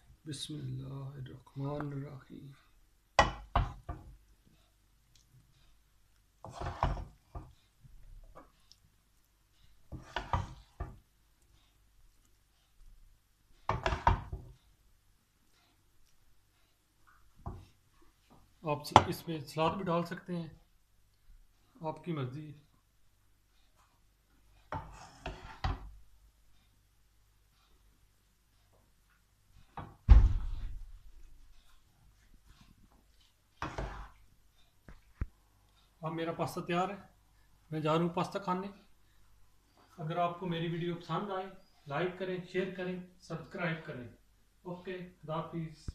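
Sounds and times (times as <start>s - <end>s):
spoon knocking and scraping pot: 3.2s - 4.2s, 6.4s - 7.6s, 9.8s - 11.0s, 13.6s - 14.6s, 24.6s - 25.9s, 33.6s - 34.2s
heavy thump: 29.8s - 31.0s.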